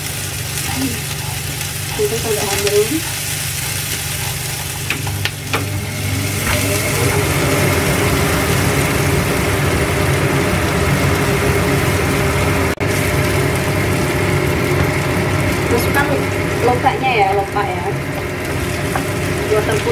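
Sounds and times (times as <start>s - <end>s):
food sizzling in a frying pan: 0.0s - 19.9s
steady machine hum: 0.0s - 19.9s.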